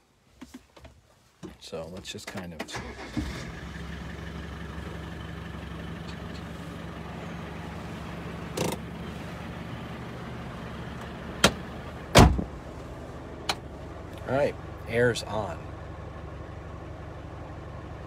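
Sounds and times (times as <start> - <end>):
car engine idling: 2.7 - 18.0
loud thump: 11.4 - 12.5.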